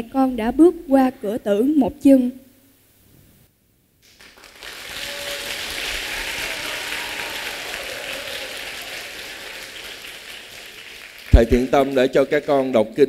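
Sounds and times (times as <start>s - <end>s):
children applauding: 4.0s - 12.7s.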